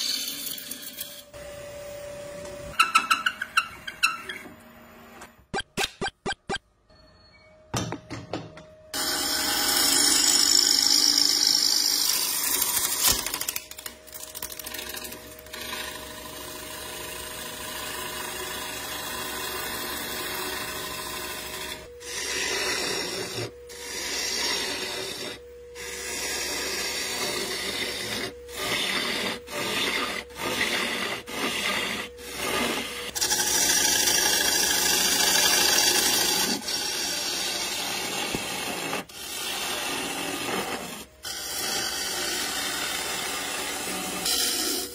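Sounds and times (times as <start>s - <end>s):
gouge scraping spinning wood: 0.0s - 1.4s, 9.0s - 13.2s, 14.6s - 44.9s
lathe hum: 9.0s - 13.0s, 14.6s - 44.9s.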